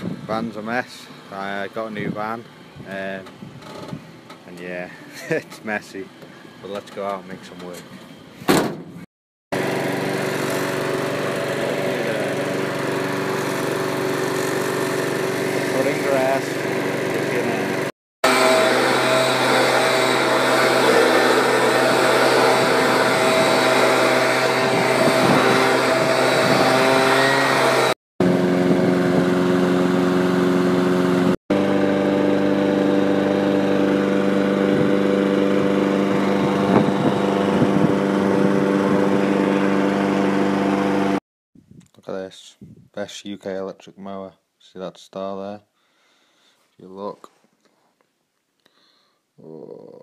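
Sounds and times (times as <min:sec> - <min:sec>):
lawn mower engines running: 0:09.6 - 0:41.2.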